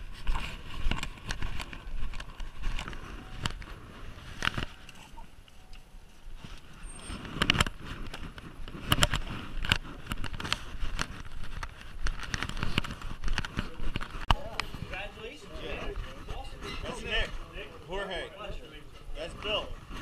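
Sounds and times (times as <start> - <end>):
camera knocking and rustling: 0.0 - 5.1, 6.6 - 15.0.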